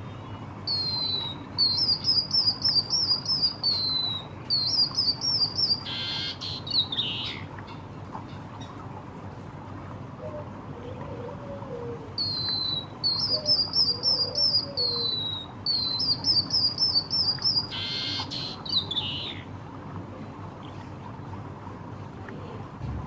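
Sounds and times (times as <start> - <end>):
bird whistling song: 0.6 - 7.8, 12.2 - 19.4.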